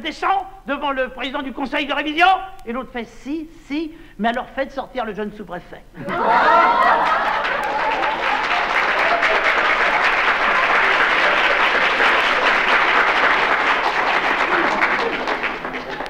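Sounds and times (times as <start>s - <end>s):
audience laughing: 6.0s - 12.9s, 14.1s - 16.0s
audience clapping: 6.1s - 16.0s.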